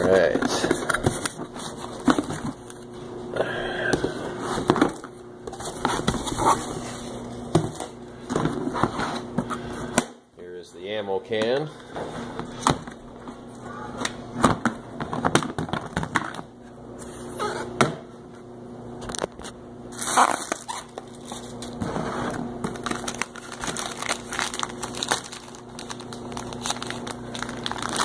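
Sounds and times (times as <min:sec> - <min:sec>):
cellophane crinkling: 0:19.9 - 0:21.8, 0:22.6 - 0:28.0.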